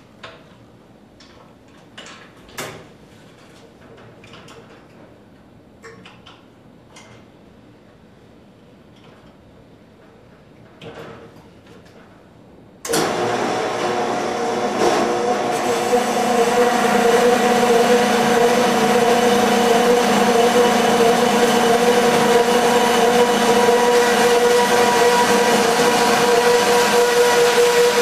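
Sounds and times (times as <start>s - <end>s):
band saw cutting metal pipe: 12.9s - 28.0s.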